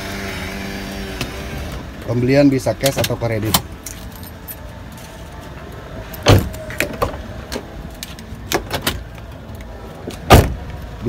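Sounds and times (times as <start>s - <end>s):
car door opening thump: 6.2s - 7.2s, 10.2s - 10.6s.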